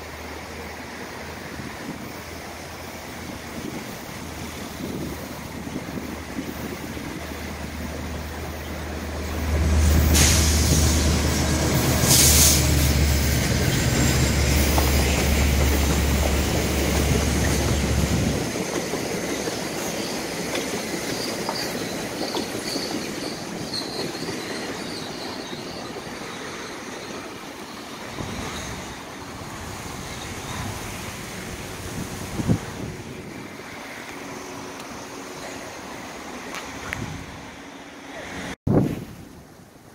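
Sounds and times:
diesel locomotive engine drone: 0.0 - 38.6
train wheels on rails: 0.0 - 38.6
faint high wheel squeals: 19.7 - 30.7.

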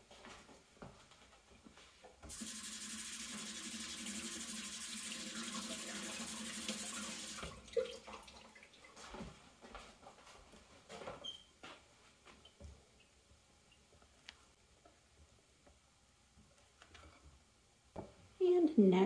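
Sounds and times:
kitchen tap running: 2.3 - 8.9.

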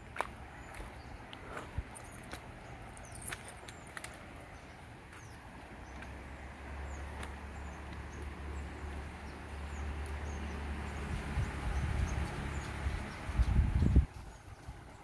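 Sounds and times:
steady outdoor hiss: 0.0 - 15.0
wind rumbling on microphone: 9.1 - 15.0.

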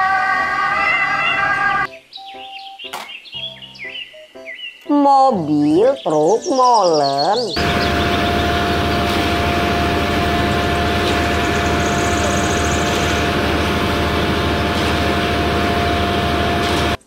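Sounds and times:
truck engine hum: 7.5 - 17.0
constant whine: 7.6 - 17.0.

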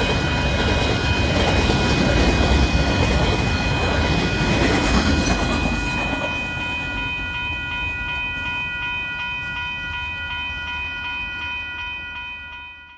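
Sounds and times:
train wagons rumbling: 0.0 - 9.7
level crossing bell ringing: 0.0 - 12.9.

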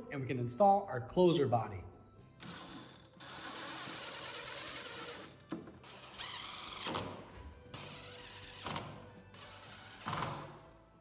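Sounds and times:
impact driver driving screws: 2.4 - 10.6.

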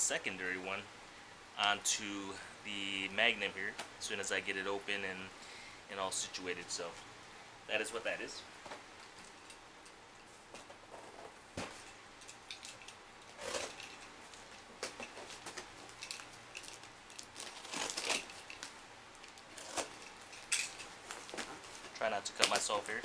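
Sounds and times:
box cutter cutting cardboard: 13.4 - 13.8, 19.5 - 20.0.

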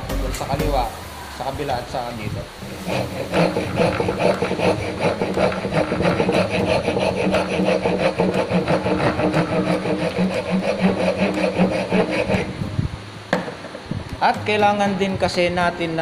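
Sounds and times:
wood rasp filing wood: 2.6 - 12.6.

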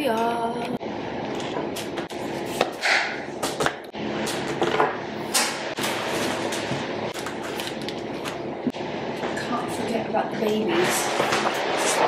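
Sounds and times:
papers rustling: 5.8 - 8.4.

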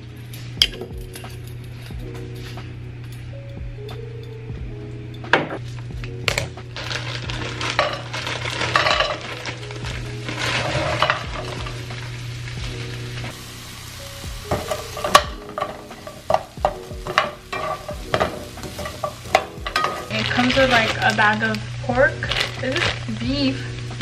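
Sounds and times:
broccoli sizzling in oil: 6.7 - 24.0
utensil scraping a pan: 6.8 - 11.7, 14.5 - 21.3.

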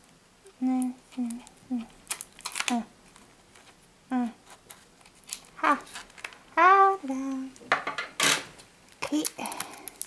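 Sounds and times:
woman's wordless vocal sounds: 0.5 - 1.9
plastic shrink-wrap crinkling: 1.1 - 3.8, 4.4 - 6.5, 8.3 - 10.0.

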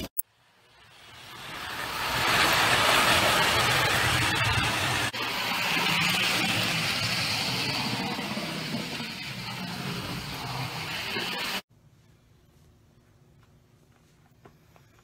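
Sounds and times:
toy trains rattling on metal track: 1.0 - 11.6.

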